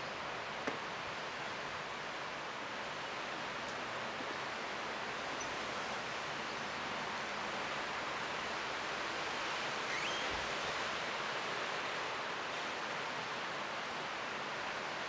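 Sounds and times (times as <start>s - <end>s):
wind rustling leaves: 0.0s - 15.0s
faint rising chirp: 9.9s - 10.3s.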